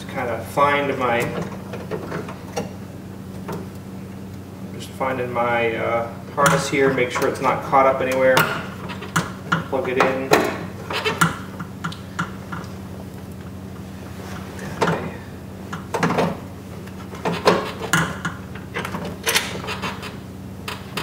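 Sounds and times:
steady low hum: 0.0 - 21.0
metallic knocks and clunks: 8.1 - 12.7.

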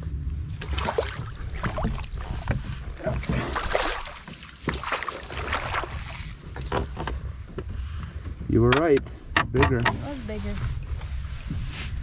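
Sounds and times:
wind rumble on microphone: 0.0 - 12.0
water splashing around canoe: 0.4 - 8.5.

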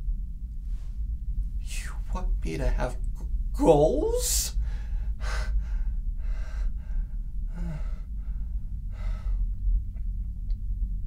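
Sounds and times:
steady low hum: 0.0 - 11.0
man breathing: 4.6 - 9.6
low vocal sound: 6.6 - 9.5.

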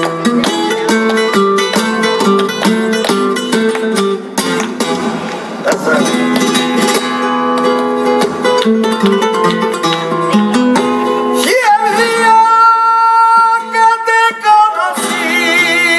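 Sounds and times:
sharp hand claps: 0.0 - 11.0
flamenco guitar strummed and picked: 0.0 - 15.9.

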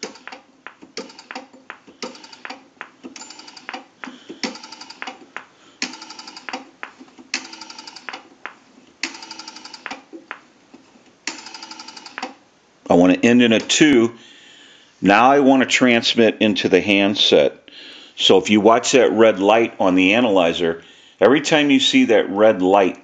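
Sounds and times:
rotary dial pulse clicks: 0.0 - 8.3.

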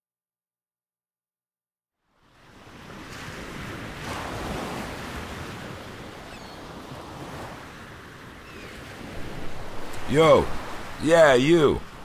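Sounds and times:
ocean surf washing: 2.2 - 12.0.

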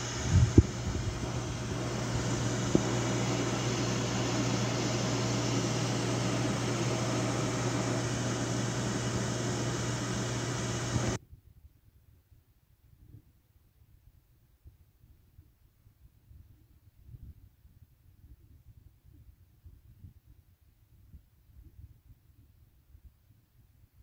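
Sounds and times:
kitchen appliance motor and fan humming: 0.0 - 11.2.

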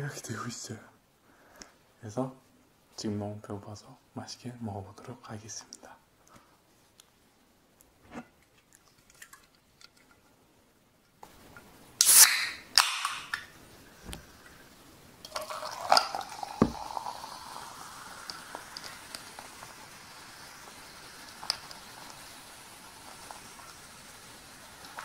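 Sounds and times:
can cracked open: 12.0 - 13.5
ice clinking: 15.2 - 19.7
cola fizzing poured over ice: 15.2 - 25.0.

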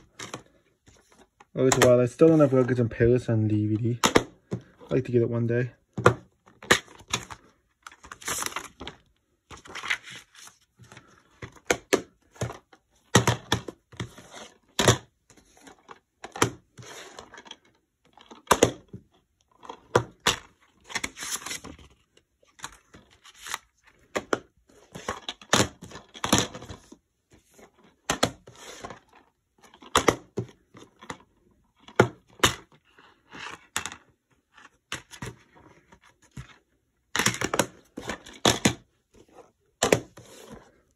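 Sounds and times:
plastic cases clicking and snapping: 0.0 - 2.4, 3.8 - 5.0, 17.2 - 27.0, 27.7 - 32.8, 33.4 - 40.8.

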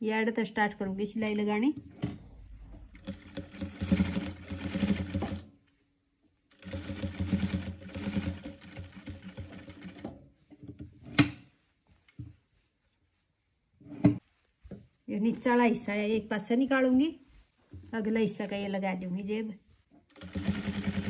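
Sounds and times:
sewing machine stitching: 2.9 - 5.5, 6.5 - 10.1, 20.1 - 21.0.

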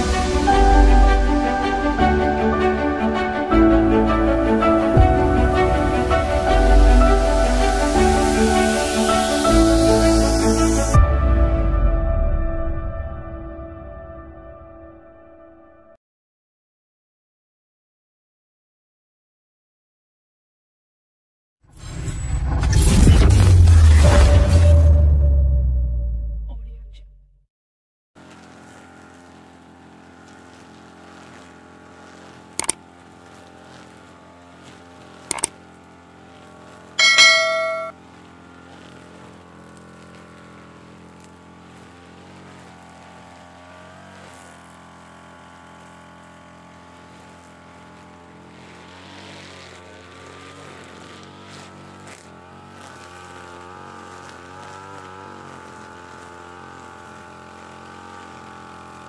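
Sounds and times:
brush cutter cutting grass: 0.0 - 11.0, 28.2 - 59.0
sharp clicks: 32.6 - 32.8, 35.3 - 35.5
short ringing ding: 37.0 - 38.0.

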